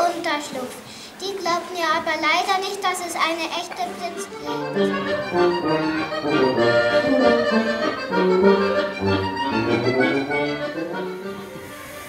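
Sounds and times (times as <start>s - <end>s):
instrumental music with bass line: 4.4s - 11.8s.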